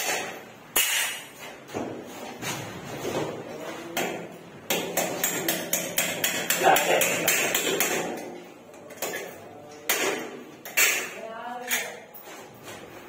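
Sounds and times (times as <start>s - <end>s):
hammer striking concrete wall: 0.0s - 2.0s, 3.9s - 8.4s, 9.9s - 11.2s.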